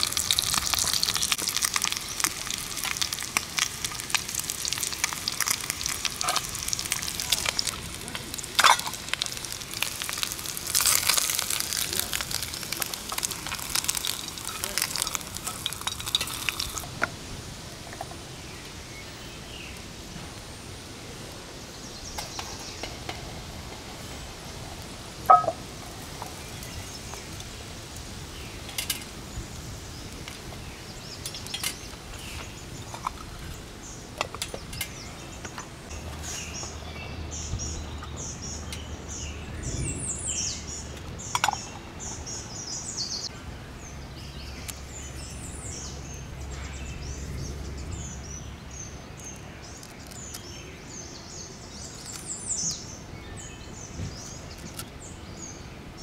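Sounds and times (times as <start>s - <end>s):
utensil clinking on metal pot: 8.6s - 9.0s, 25.3s - 25.6s.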